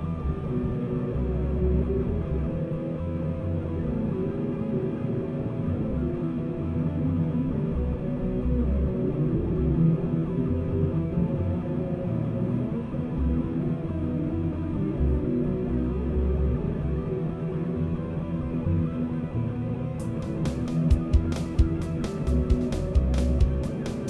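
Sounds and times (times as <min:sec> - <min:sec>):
guitars playing: 0:00.1 - 0:24.0
bass line: 0:20.0 - 0:24.0.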